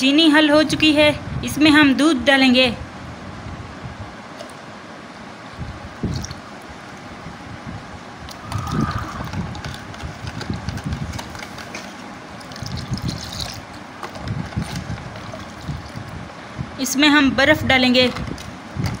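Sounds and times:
liquid pouring and splashing: 0:06.0 - 0:06.4, 0:08.3 - 0:16.2.

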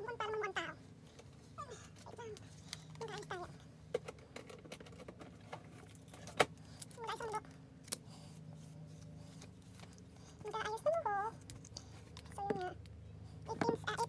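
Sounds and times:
faint steady hum: 0:00.0 - 0:14.0
objects clicking and clattering: 0:03.9 - 0:07.0.

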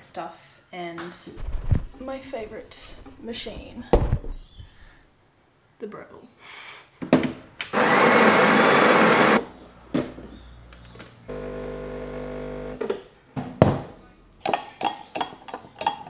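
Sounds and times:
coffee grinder grinding beans: 0:07.8 - 0:09.4, 0:11.3 - 0:12.8
espresso pump humming: 0:07.8 - 0:09.4, 0:11.3 - 0:12.8
spoon clinking in a glass: 0:14.4 - 0:16.0.

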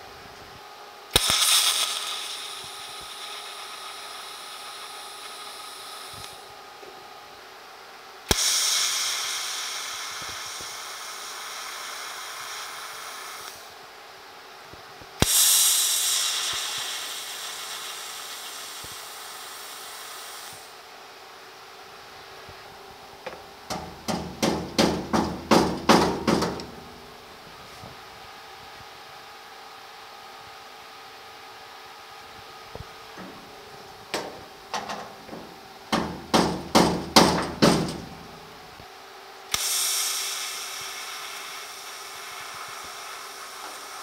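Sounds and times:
welding arc crack and hiss: 0:01.1 - 0:07.5, 0:08.2 - 0:44.0
tapping on sheet metal: 0:23.3 - 0:27.0, 0:34.1 - 0:38.3.

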